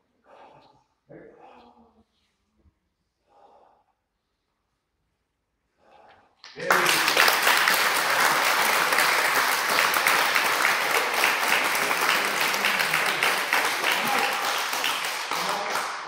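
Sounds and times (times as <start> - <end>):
group applause: 6.4 - 16.0.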